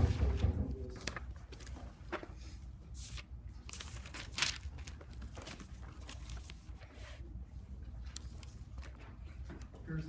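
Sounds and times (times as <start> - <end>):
low room hum: 0.0 - 10.0
paper rustling and crinkling: 0.2 - 7.2.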